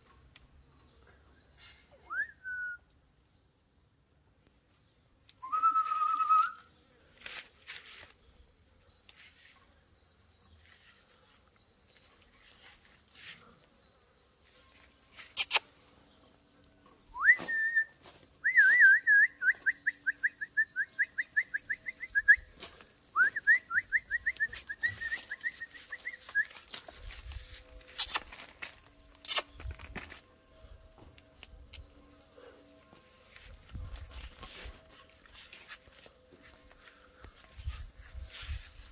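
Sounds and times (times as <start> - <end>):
person whistling: 2.0 - 2.8, 5.4 - 6.6, 17.2 - 22.4, 23.2 - 26.6
sharp clicks: 27.9 - 30.0.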